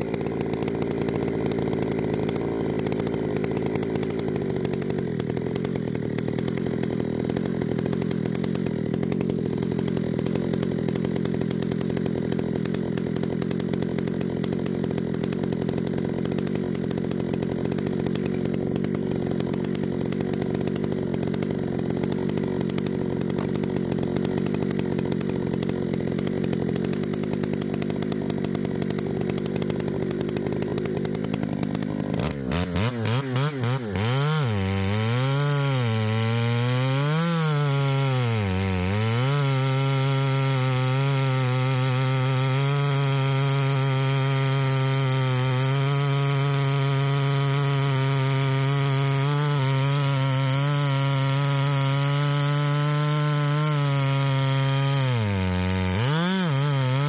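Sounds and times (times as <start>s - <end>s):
chainsaw cutting through log: 0.0s - 57.0s.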